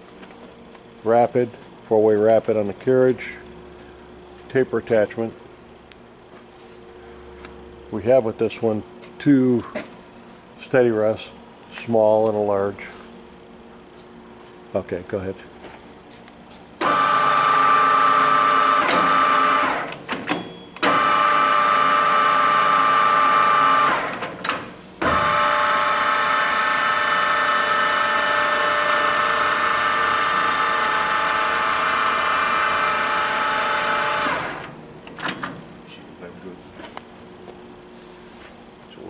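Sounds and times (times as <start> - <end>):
lathe whining: 16.8 - 20.0, 20.8 - 24.2, 25.0 - 34.8.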